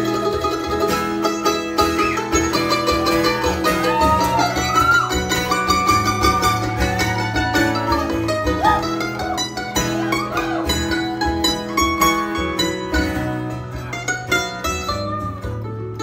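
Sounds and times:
acoustic guitar: 0.0 - 16.0
mandolin: 0.0 - 16.0.

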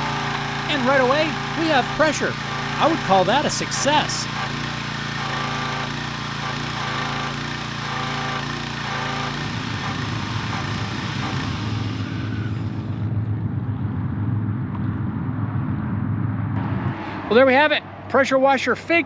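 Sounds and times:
pressure washer engine running: 0.0 - 13.0.

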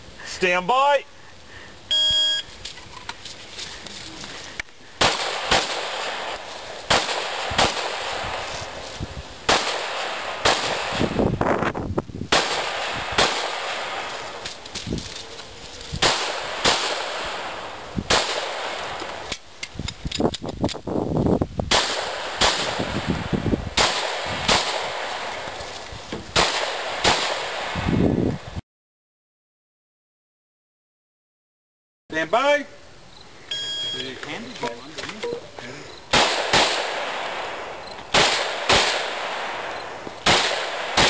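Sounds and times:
pistol shots: 5.0 - 8.3, 9.5 - 11.2, 12.3 - 14.2, 16.0 - 19.0, 21.7 - 23.0, 23.8 - 25.3, 26.4 - 27.8, 36.1 - 41.0.

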